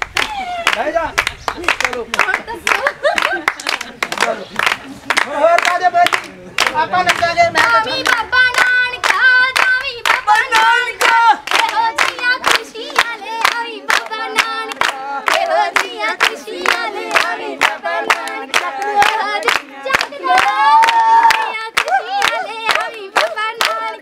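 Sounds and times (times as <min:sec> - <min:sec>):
rhythmic hand clapping: 0:00.0 - 0:24.0
group of voices singing: 0:05.0 - 0:24.0.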